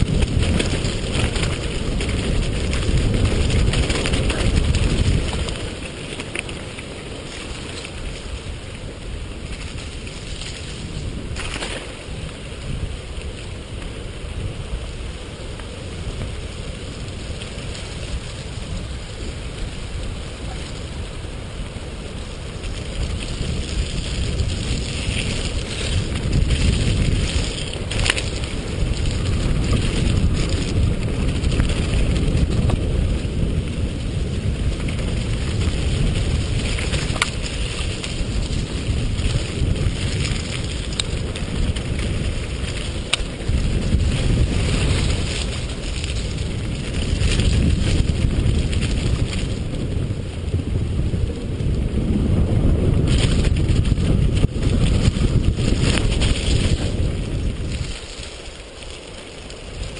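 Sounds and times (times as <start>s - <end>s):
sharp clicks from trail knocks: 0.0s - 8.4s, 9.5s - 12.4s, 22.6s - 33.1s, 34.7s - 49.6s
bike tyres and frame rattling: 0.0s - 59.9s
wind rushing on microphone: 0.0s - 59.9s.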